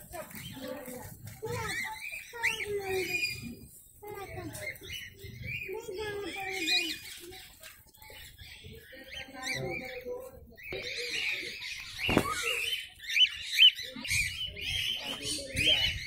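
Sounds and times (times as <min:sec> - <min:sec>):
cockatiels chirping and calling: 0:00.0 - 0:16.0.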